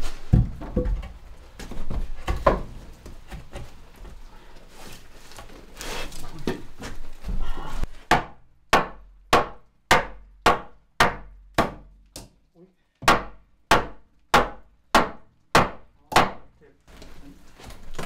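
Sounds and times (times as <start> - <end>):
hammer striking wood: 8.1 - 12.3, 13.0 - 16.4.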